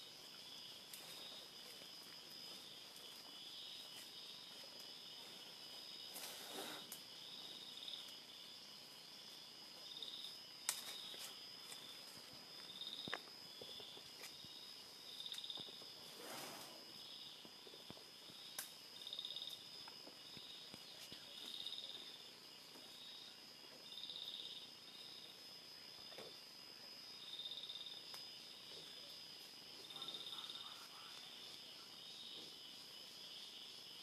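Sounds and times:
pulsing insect chirp: 0.0 - 34.0
insects high-pitched drone: 16.8 - 34.0.

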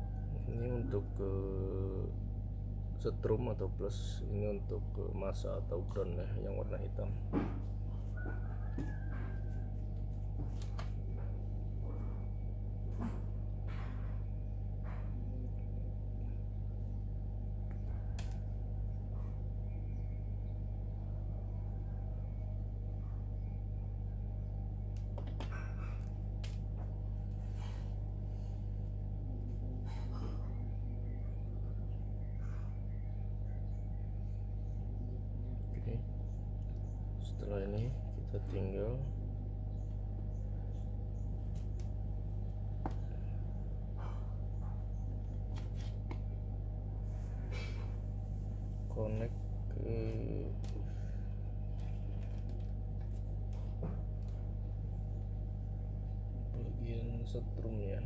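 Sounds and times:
low background hum: 0.0 - 58.0
wires being handled: 17.6 - 18.7, 24.9 - 29.6, 45.1 - 55.7.

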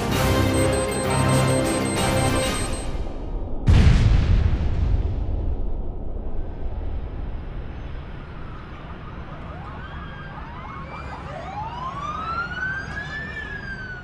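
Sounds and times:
steady low rumble: 3.0 - 9.1
siren-like wail rising in pitch: 9.0 - 14.0.

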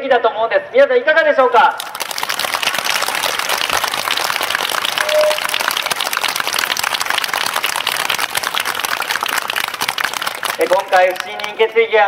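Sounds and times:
crowd applauding: 1.7 - 11.7
short single tone: 5.0 - 5.7.

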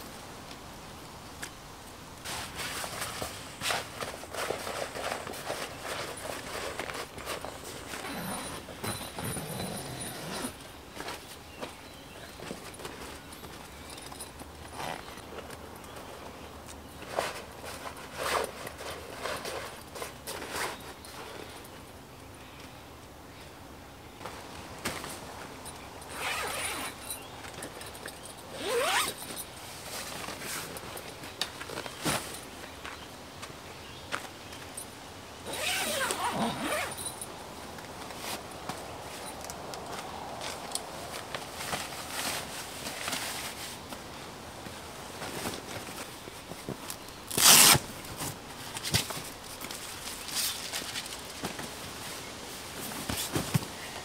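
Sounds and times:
handling clicks and rustles: 2.2 - 22.8, 24.2 - 54.0
zipper being pulled: 7.9 - 10.6, 26.1 - 27.0, 28.5 - 29.2, 35.4 - 37.2, 47.3 - 47.8.

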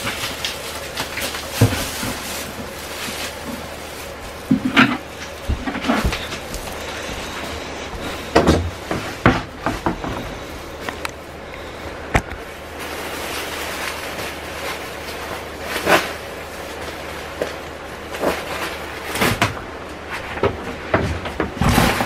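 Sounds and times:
household knocks and bumps: 0.0 - 2.8, 3.4 - 10.3.

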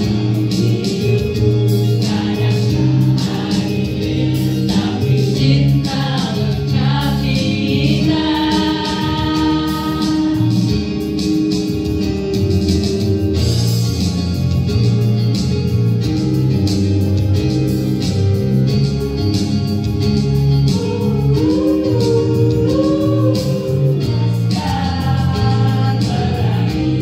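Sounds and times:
choir singing: 0.0 - 10.6, 20.8 - 27.0.

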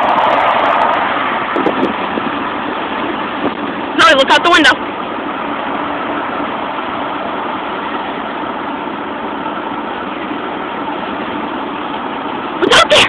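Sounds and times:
wind rushing: 0.0 - 3.9
car road noise: 0.0 - 13.0.

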